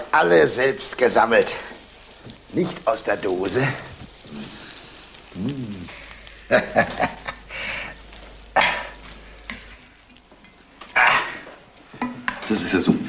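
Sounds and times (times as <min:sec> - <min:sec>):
wooden spoon stirring in a pan: 0:00.8 - 0:12.6.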